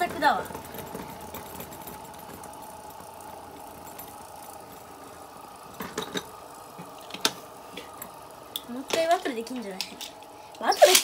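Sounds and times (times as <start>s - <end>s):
spinning tops whirring: 0.0s - 11.0s.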